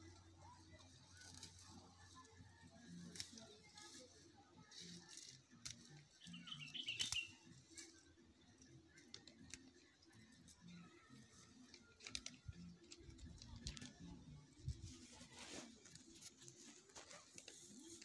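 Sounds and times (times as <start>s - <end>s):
dry grass rustling and crackling: 0.0s - 18.0s.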